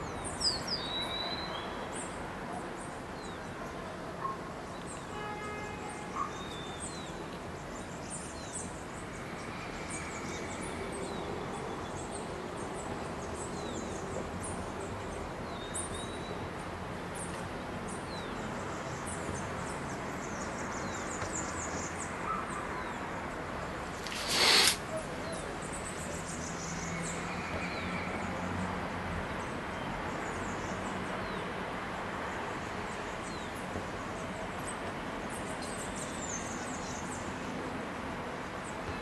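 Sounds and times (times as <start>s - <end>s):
outdoor background noise: 0.0s - 39.0s
bird whistles: 24.0s - 24.8s
small birds chirping: 24.0s - 24.9s.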